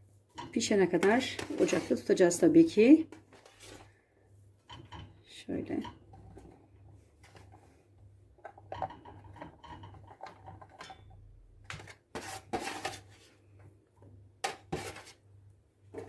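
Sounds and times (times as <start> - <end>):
metal tray knocking pot: 4.7 - 6.2.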